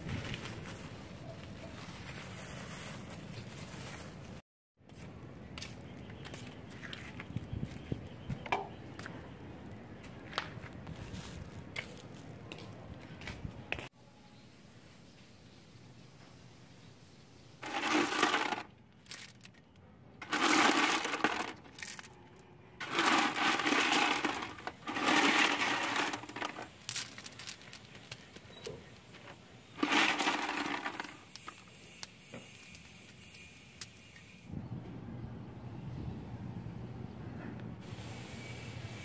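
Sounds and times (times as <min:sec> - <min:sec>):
small stones clattering: 0:17.6 - 0:19.6, 0:20.2 - 0:22.2, 0:22.8 - 0:31.7.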